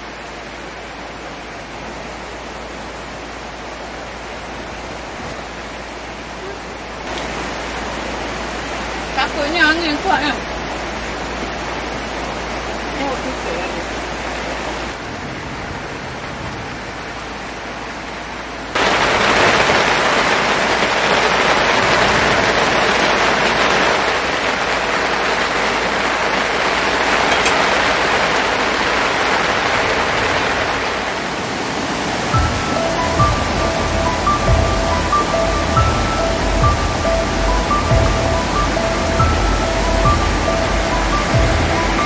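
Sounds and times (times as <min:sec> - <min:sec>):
rushing water: 0:00.0 - 0:42.0
background music: 0:32.3 - 0:42.0.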